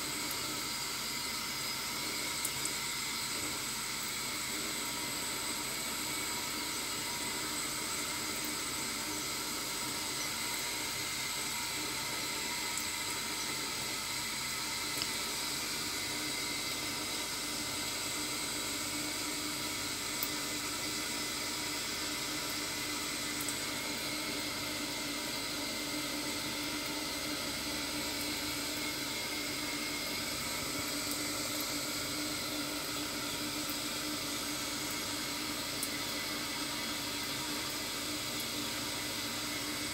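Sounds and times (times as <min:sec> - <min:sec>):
tap water running into sink: 0:00.0 - 0:39.9.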